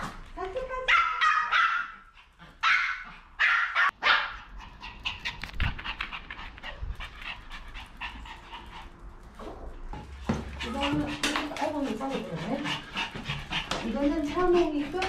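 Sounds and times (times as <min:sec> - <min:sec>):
dogs barking excitedly: 0:00.8 - 0:09.4, 0:10.1 - 0:15.0
dog claws clicking on floor: 0:05.1 - 0:07.4, 0:08.8 - 0:12.2.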